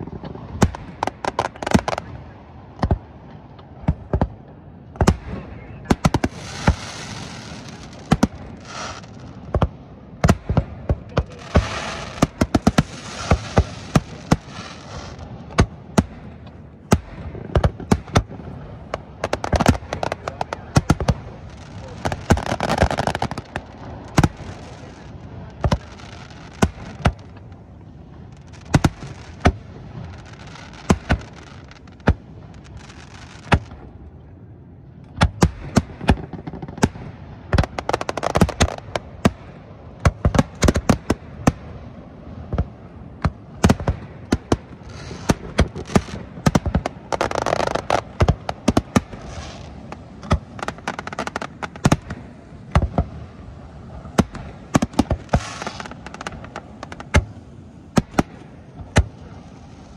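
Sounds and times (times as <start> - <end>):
firework shells bursting: 5.0 - 27.5, 54.1 - 57.3.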